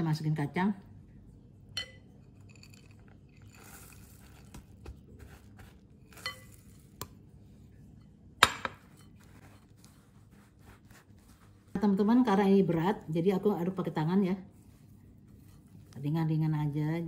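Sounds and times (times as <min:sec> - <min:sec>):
glass clinking: 0:01.7 - 0:03.5, 0:08.4 - 0:09.1
spatula stirring dough in glass bowl: 0:01.8 - 0:17.0.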